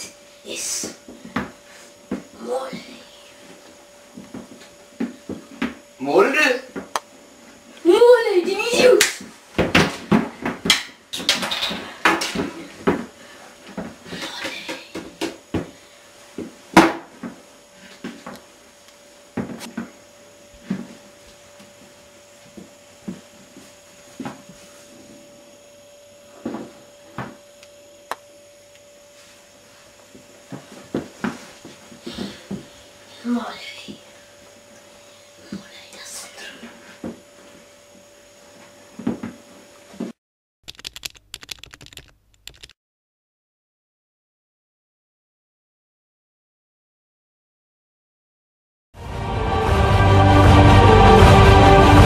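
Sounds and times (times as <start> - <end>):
faint steady hum: 0.0 - 40.2
rapid clicks like typing: 40.7 - 42.8.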